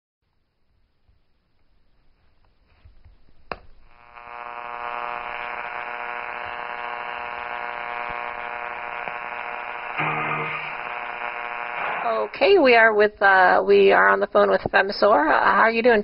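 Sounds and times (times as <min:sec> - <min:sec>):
radio speaker buzzing hum: 0:03.5 - 0:13.2
radio switch click: 0:05.3 - 0:12.1.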